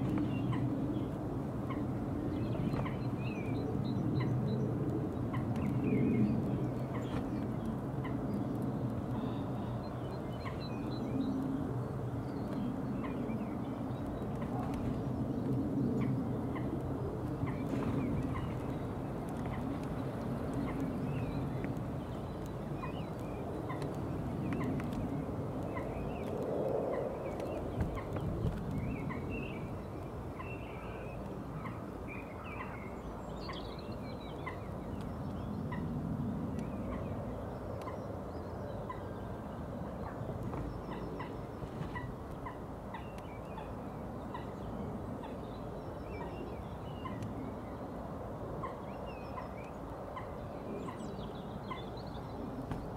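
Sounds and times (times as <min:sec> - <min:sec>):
small birds chirping: 0:00.0 - 0:52.9.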